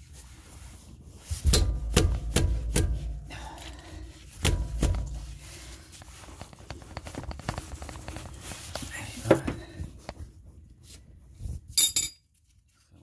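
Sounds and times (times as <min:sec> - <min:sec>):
ringing metal clink: 0:11.8 - 0:12.2.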